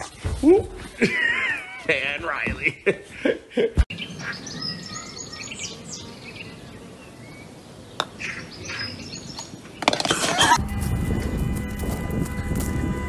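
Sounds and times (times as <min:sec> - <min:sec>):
small birds chirping: 0:03.9 - 0:10.1.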